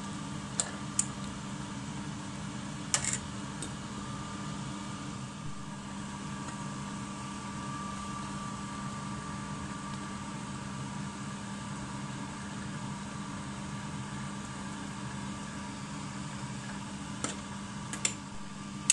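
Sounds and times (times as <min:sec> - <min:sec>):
steady mechanical hum: 0:00.0 - 0:18.9.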